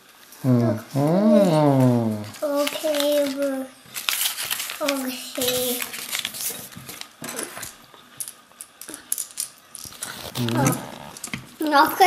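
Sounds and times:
paper crinkling and rustling: 1.7s - 7.8s, 9.8s - 11.6s.

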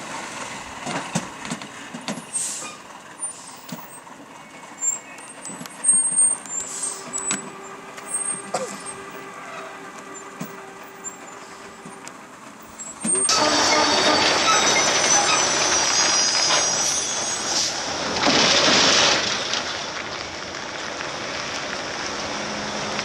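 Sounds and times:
lorry engine under load: 0.0s - 23.0s
air brake hisses: 2.3s - 3.8s, 6.5s - 7.3s, 15.4s - 17.9s.

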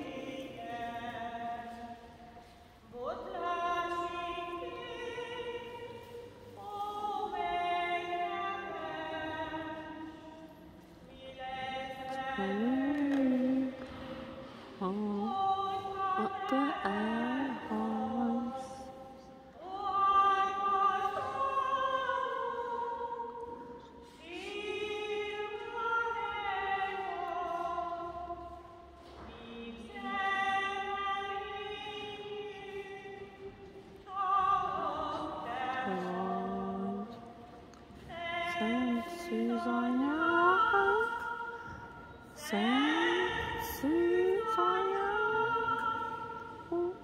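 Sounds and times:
hymn sung in a church: 0.0s - 47.0s.

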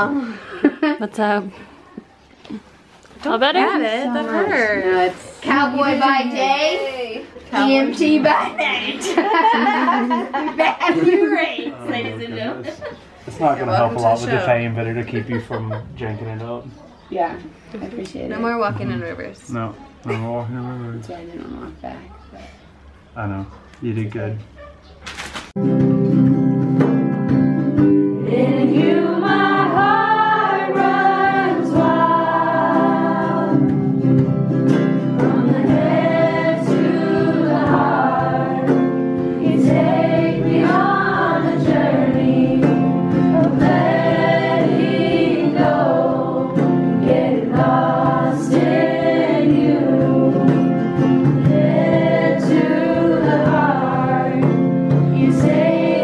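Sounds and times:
hand drum: 25.6s - 29.0s, 32.8s - 40.8s
strummed acoustic guitars: 25.6s - 56.0s
group singing worship song: 28.0s - 56.0s.

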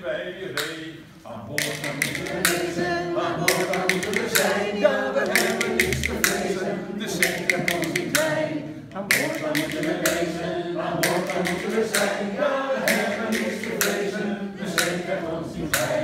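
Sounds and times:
voices singing together: 0.0s - 16.0s
rhythm bones clicking: 1.5s - 16.0s.

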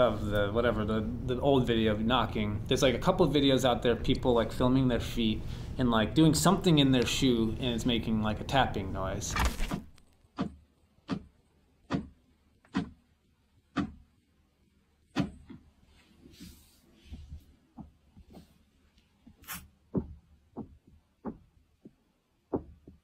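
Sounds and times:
foot tapping inside shoe: 9.6s - 11.3s, 11.9s - 13.0s, 13.7s - 14.0s, 16.4s - 18.6s, 19.2s - 23.0s.

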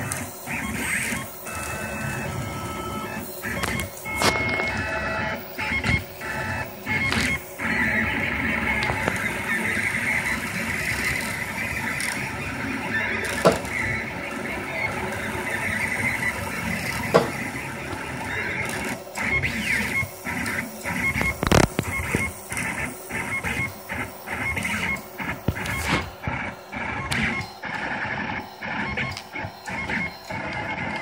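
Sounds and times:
stepper motors whining: 0.0s - 31.0s
printer knock: 5.7s - 10.4s, 13.2s - 15.1s, 17.0s - 18.7s.

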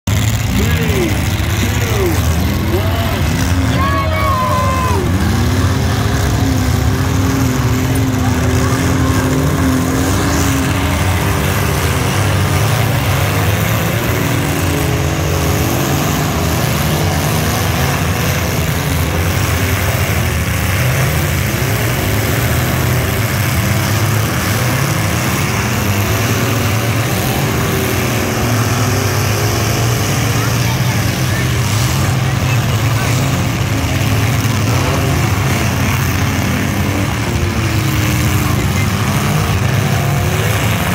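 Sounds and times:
many car engines revving: 0.0s - 40.9s.

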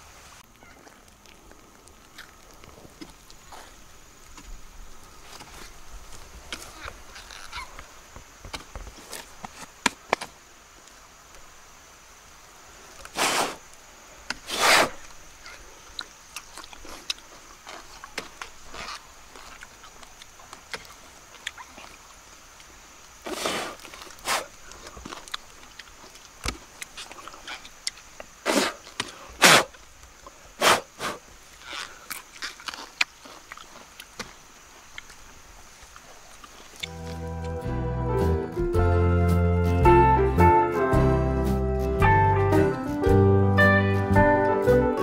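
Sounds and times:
crackle and rustle of dry fibre: 0.0s - 11.7s, 12.3s - 37.2s
rasping rips of fibre: 13.1s - 13.7s, 14.3s - 15.6s, 16.7s - 20.0s, 23.2s - 25.4s, 30.6s - 34.3s.

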